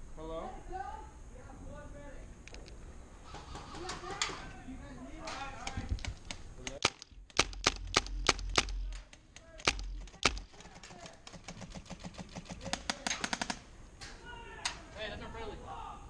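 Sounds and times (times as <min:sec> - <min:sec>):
airsoft gun rapid burst: 0:06.8 - 0:09.0, 0:09.6 - 0:13.6
airsoft gun shots: 0:06.8 - 0:09.0, 0:09.6 - 0:13.6.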